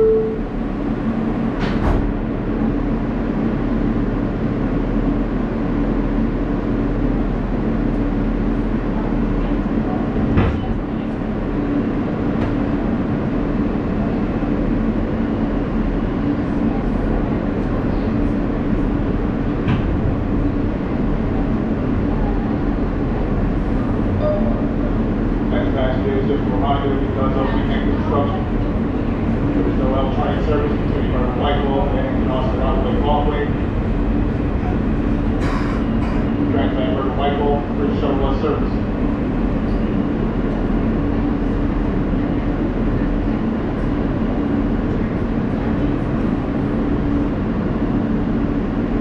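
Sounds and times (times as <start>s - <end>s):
subway car interior hum: 0.0s - 49.0s
sharp knocks from subway car: 1.6s - 2.2s, 10.3s - 10.8s, 19.6s - 20.0s.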